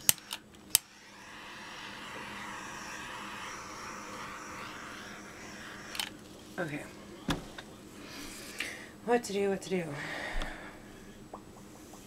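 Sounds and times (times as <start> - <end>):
torch igniter clicks: 0.0 - 0.9
torch flame hissing: 0.0 - 8.6.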